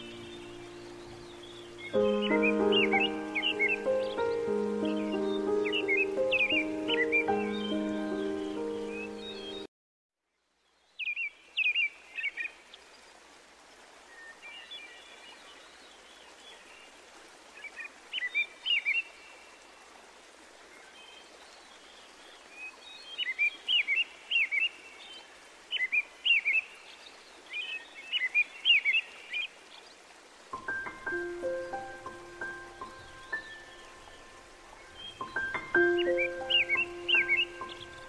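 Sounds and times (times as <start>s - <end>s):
soft outdoor hiss: 0.0s - 38.0s
small bird chirping: 31.6s - 38.0s.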